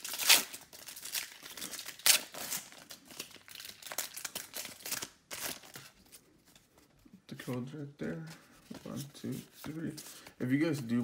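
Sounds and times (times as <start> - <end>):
foil wrapper tearing and crinkling: 0.0 - 5.8.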